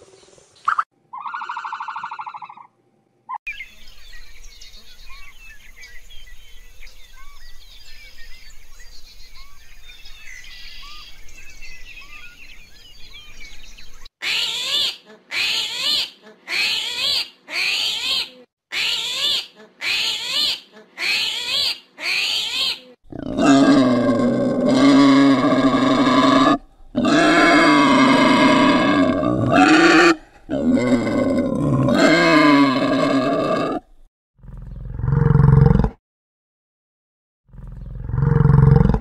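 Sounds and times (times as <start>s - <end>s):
wild boar grunting: 23.1s - 36.0s, 37.5s - 39.0s.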